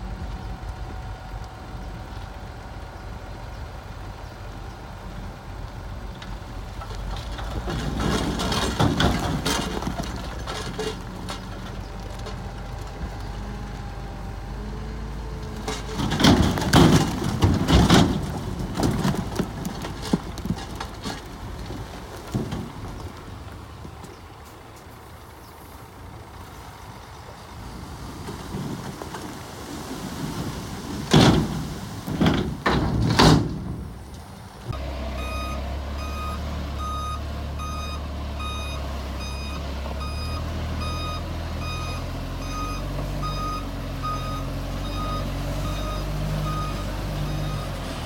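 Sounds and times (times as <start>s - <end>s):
bulldozer diesel engine running: 0.0s - 48.0s
clattering and knocking of rock: 6.2s - 12.4s, 15.6s - 24.2s, 28.2s - 34.0s.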